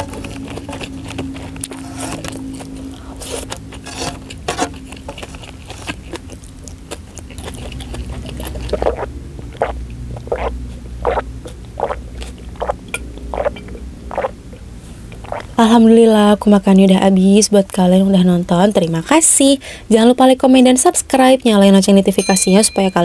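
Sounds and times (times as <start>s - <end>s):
chewing with wet mouth clicks: 0.0s - 15.6s
loud gulps swallowing water: 8.3s - 14.4s.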